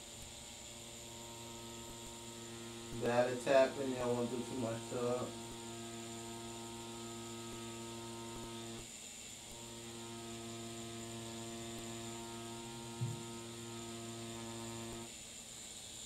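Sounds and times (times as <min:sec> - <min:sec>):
tattoo machine humming: 0:00.0 - 0:16.0
short thump: 0:13.0 - 0:13.2.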